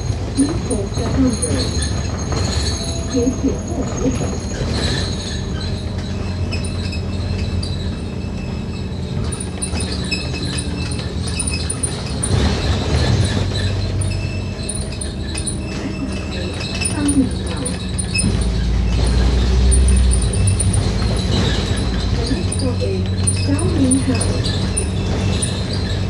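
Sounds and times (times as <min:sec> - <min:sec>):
bodywork rattles: 0:00.0 - 0:26.0
bus diesel engine drone: 0:00.0 - 0:26.0.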